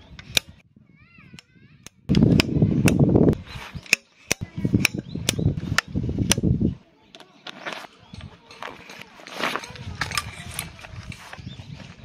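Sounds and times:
tent pegs being hammered: 0.2s - 0.6s, 3.8s - 6.5s.

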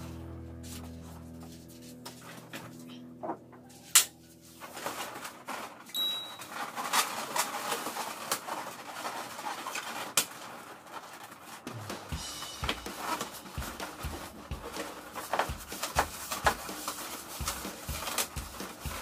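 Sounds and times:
balloons rubbing and squeaking: 6.4s - 19.0s.

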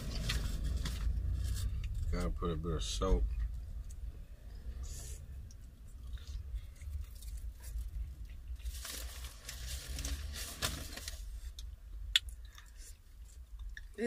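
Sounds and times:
steady low rumble: 0.0s - 14.0s
paper packaging crinkling: 8.5s - 11.4s.

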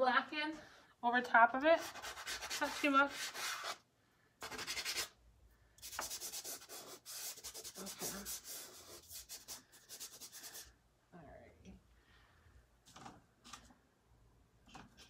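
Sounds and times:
pastel scraping on paper: 1.8s - 3.8s, 4.4s - 5.1s, 5.8s - 10.7s.

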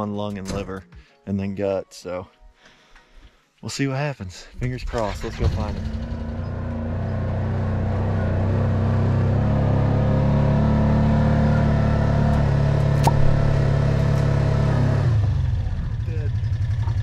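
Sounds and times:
off-road buggy engine running: 4.8s - 17.0s.

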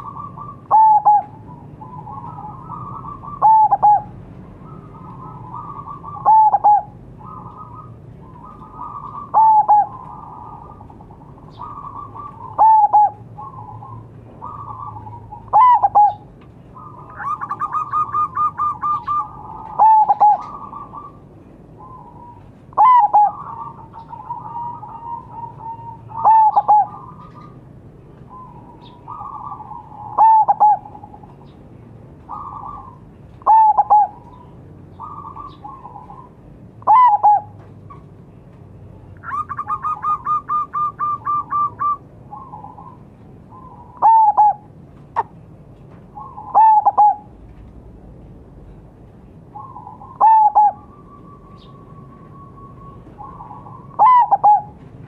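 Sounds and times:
dove cooing: 0.0s - 27.6s, 28.2s - 31.5s, 32.2s - 38.0s, 39.2s - 45.4s, 46.1s - 47.4s, 49.5s - 54.9s.

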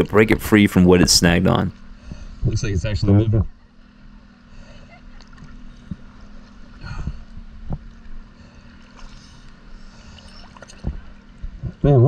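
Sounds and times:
steady low hum: 0.0s - 12.0s
water sloshing and gurgling: 4.2s - 11.8s.

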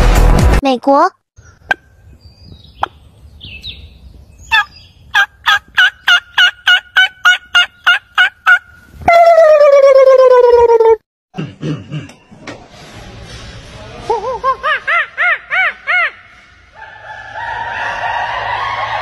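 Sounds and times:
wild turkey yelps: 4.5s - 10.0s.

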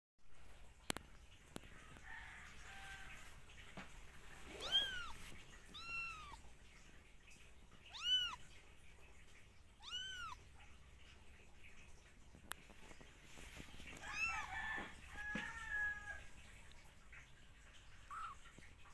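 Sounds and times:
kitten mewing: 4.6s - 6.4s, 7.9s - 8.5s, 9.8s - 10.5s.

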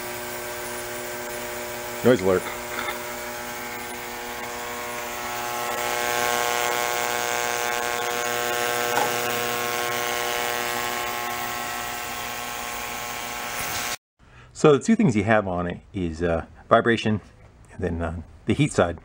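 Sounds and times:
ultrasonic cleaner buzzing hum: 0.0s - 14.0s.

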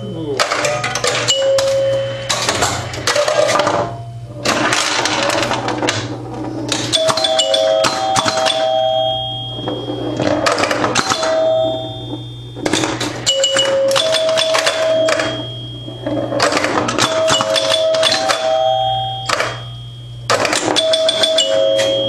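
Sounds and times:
steady low hum: 0.0s - 22.0s
pinball relay clicking: 0.4s - 3.8s, 4.4s - 22.0s
chime bells ringing: 7.0s - 10.2s, 13.2s - 16.4s, 20.8s - 22.0s.

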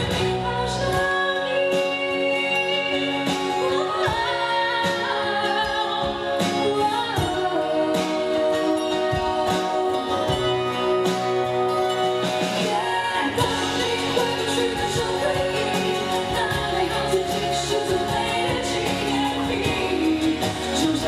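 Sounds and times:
band with electric guitar: 0.0s - 21.0s
woman singing into microphone: 0.0s - 21.0s.

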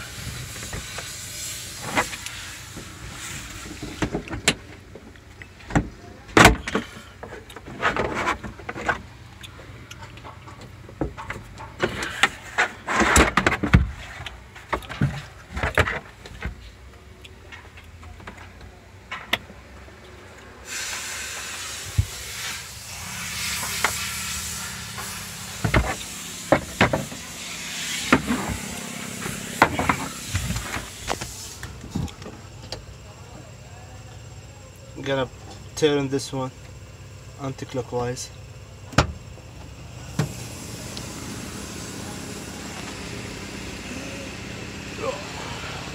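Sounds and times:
steady hiss: 0.0s - 4.3s, 20.6s - 32.5s, 39.8s - 45.9s.

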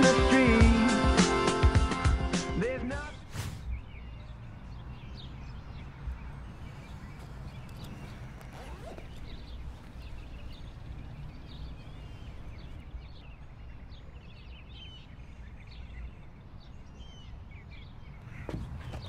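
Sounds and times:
small birds chirping: 3.6s - 19.0s
knocks and rustling: 18.4s - 19.0s.

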